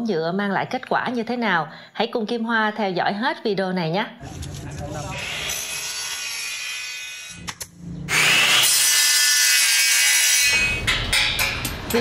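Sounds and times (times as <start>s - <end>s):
miter saw cutting board: 4.7s - 10.8s
power cutter high-pitched cut: 5.0s - 7.4s, 8.1s - 10.8s.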